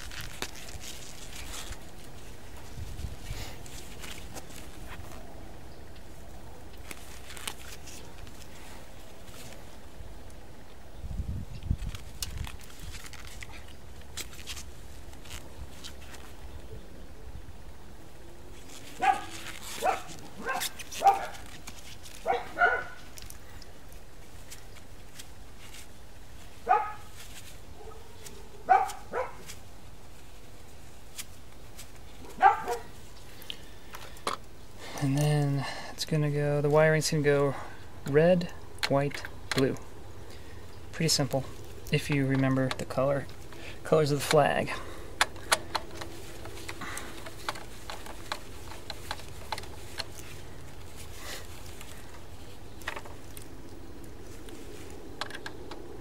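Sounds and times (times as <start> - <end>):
steady low hum: 0.0 - 56.0
dog barking: 19.0 - 21.4, 22.2 - 23.0, 26.7 - 27.1, 27.8 - 29.4, 32.2 - 32.9.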